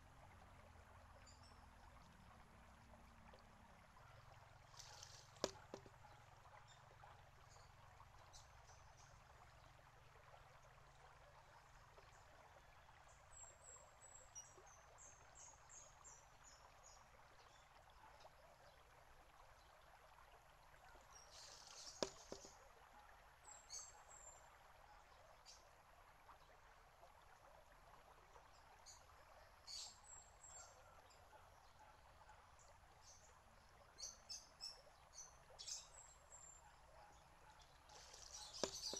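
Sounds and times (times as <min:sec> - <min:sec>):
water trickling from bamboo spout: 0:00.0 - 0:38.9
small birds chirping: 0:04.7 - 0:06.9, 0:21.1 - 0:22.6, 0:33.0 - 0:38.9
bamboo tube knocking on stone: 0:05.4 - 0:06.0, 0:22.0 - 0:22.6, 0:38.6 - 0:38.9.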